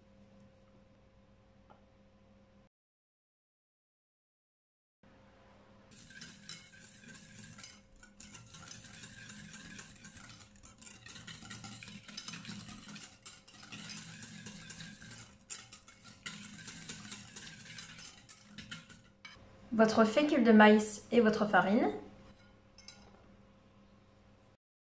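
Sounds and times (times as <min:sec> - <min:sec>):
whisk beating batter in bowl: 0:05.9 - 0:19.4
whisk tapping bowl: 0:06.0 - 0:19.4.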